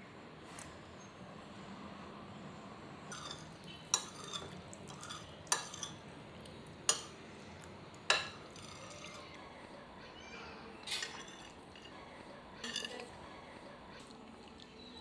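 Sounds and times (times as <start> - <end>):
spoons clinking on a ceramic plate: 3.1 - 6.0, 6.9 - 7.2, 8.0 - 9.4, 10.8 - 12.0, 12.6 - 13.1.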